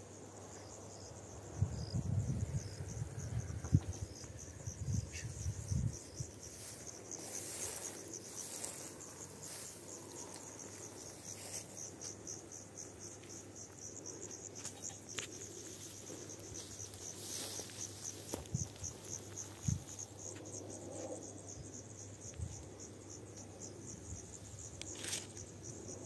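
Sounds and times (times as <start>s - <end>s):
insects chirring: 0.0s - 26.0s
wind rumble on microphone: 1.4s - 6.7s, 18.3s - 22.9s.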